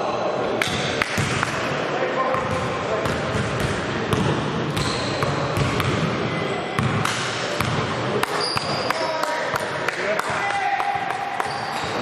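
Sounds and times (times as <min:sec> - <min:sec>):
basketball bouncing on court: 0:01.2 - 0:01.6, 0:02.3 - 0:06.1, 0:06.8 - 0:12.0
sneakers squeaking on floor: 0:03.3 - 0:07.0, 0:08.3 - 0:09.4, 0:11.4 - 0:12.0.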